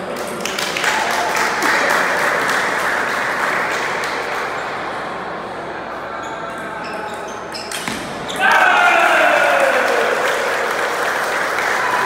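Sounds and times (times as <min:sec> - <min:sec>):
onlookers clapping: 0:00.0 - 0:04.5, 0:08.4 - 0:12.0.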